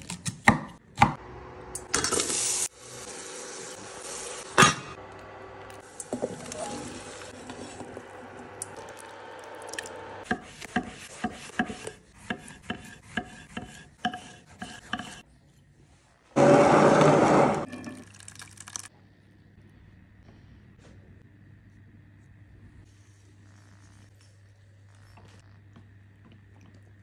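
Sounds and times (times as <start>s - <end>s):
spoon stirring in saucepan: 5.9s - 15.2s
knife slicing on chopping board: 10.3s - 15.2s.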